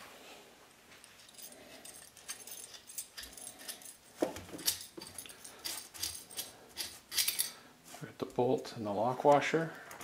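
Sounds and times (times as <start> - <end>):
small metal parts clinking: 1.0 - 7.6.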